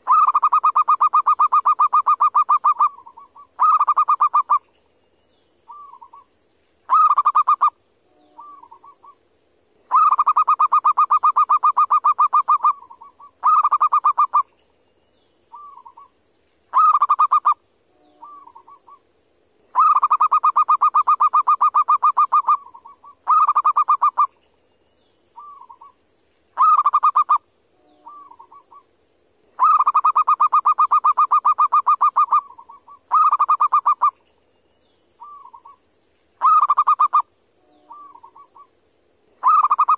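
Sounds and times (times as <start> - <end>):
dove cooing: 0.0 - 4.6, 6.9 - 7.7, 9.9 - 14.4, 16.7 - 17.6, 19.8 - 24.3, 26.6 - 27.4, 28.0 - 28.8, 29.6 - 34.1, 36.4 - 37.2, 37.8 - 38.7, 39.4 - 39.9
steady high hiss: 0.0 - 39.9.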